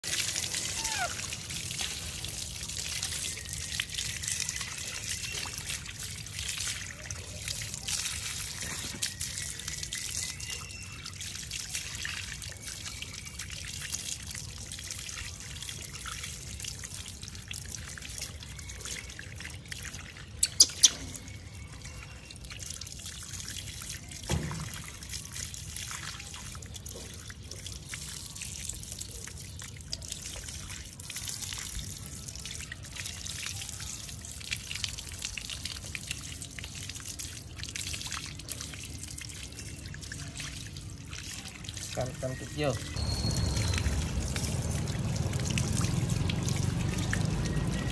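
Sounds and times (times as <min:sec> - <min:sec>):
hose water splashing on paving: 0:00.0 - 0:47.9.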